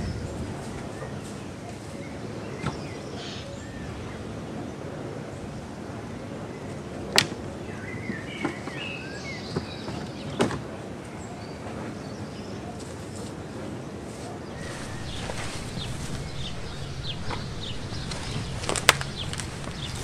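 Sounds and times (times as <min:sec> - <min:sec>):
steady background hiss: 0:00.0 - 0:20.0
bird chirping: 0:14.4 - 0:20.0.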